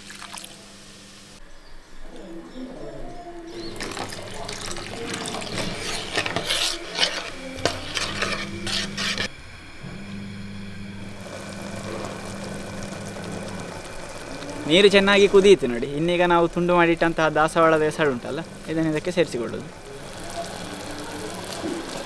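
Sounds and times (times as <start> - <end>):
gas burner hum and hiss: 0.0 - 1.5, 3.5 - 22.0
water splashing: 3.7 - 9.2, 11.1 - 22.0
metal spoon stirring in pan: 3.7 - 9.3.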